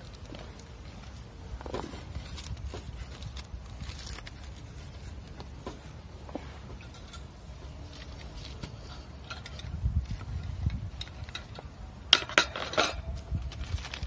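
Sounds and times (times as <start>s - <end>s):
tongs clattering on grill rack: 11.0s - 13.2s.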